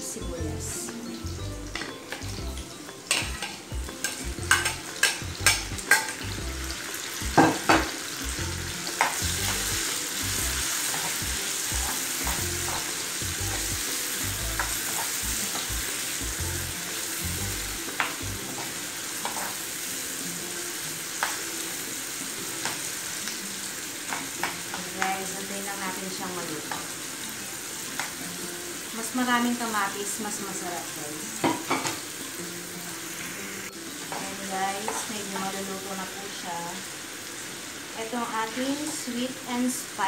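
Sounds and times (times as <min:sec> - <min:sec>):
vegetables sizzling in frying pan: 0:00.0 - 0:40.0
metal spoon clicking on pan: 0:03.1 - 0:06.2.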